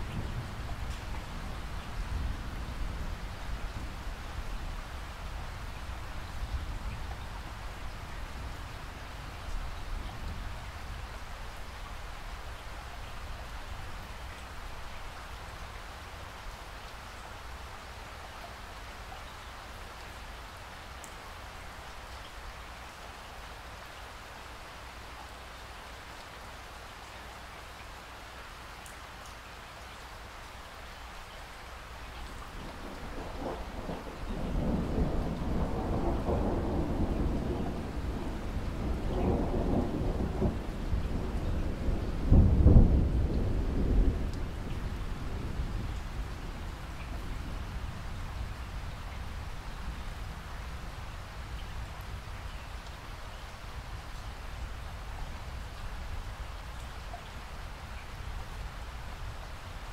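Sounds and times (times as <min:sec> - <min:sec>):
low rumble of thunder: 0:00.0 - 0:15.6, 0:32.2 - 0:59.9
steady rain falling: 0:00.0 - 0:59.9.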